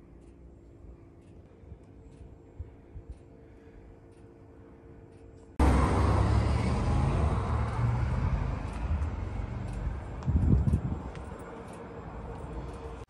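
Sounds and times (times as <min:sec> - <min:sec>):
faint steady hum: 0:00.0 - 0:05.6
low rumble of road vehicle: 0:00.0 - 0:13.0.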